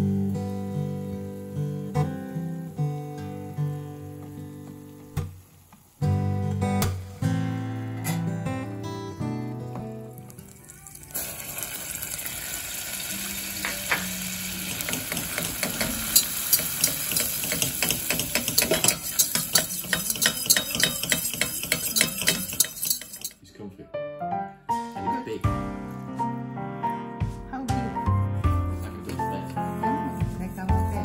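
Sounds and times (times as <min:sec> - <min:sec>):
roux sizzling in saucepan: 0:00.2 - 0:08.0, 0:10.0 - 0:23.4
utensil clicking against pan: 0:14.8 - 0:23.4.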